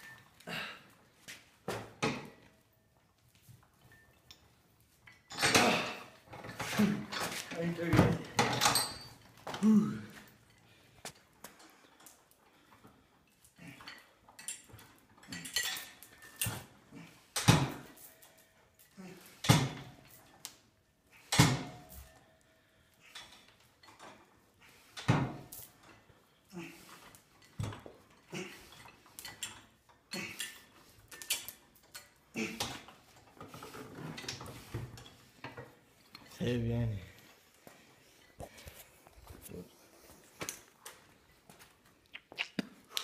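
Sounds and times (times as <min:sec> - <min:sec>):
weights and chains clinking: 0:03.0 - 0:09.5, 0:13.3 - 0:20.4, 0:24.9 - 0:36.4.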